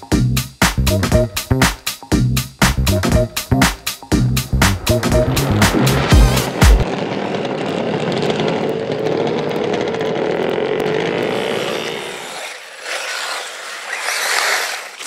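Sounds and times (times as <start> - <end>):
distant engine note: 2.9 - 11.6
nitro engine revving: 4.1 - 15.0.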